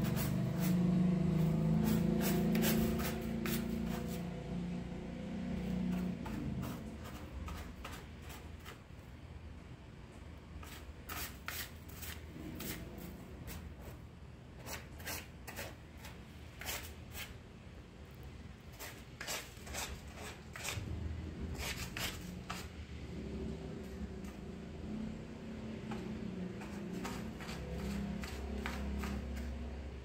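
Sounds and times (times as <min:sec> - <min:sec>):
cat scratching litter: 0:00.0 - 0:04.7, 0:05.4 - 0:09.1, 0:10.6 - 0:17.4, 0:18.6 - 0:23.2, 0:23.8 - 0:30.0.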